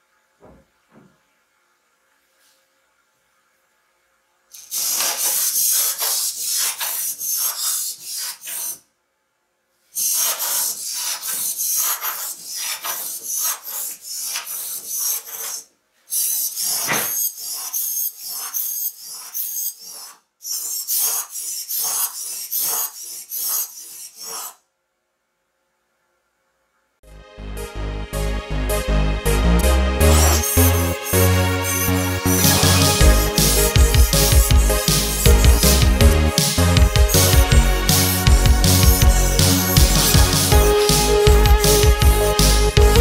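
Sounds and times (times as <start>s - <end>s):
robot servo motors buzzing: 4.5s - 8.8s, 10.0s - 24.6s, 30.1s - 36.0s.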